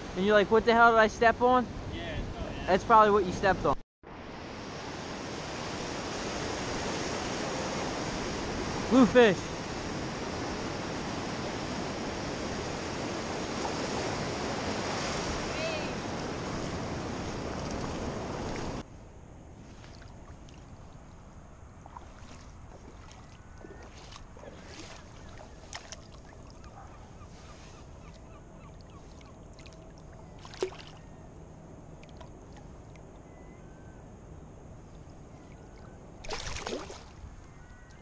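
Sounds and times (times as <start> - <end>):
shallow water lapping: 5.4 - 18.8, 19.6 - 31.2, 34.9 - 38.0
fish splashing: 29.1 - 31.0, 36.2 - 37.2.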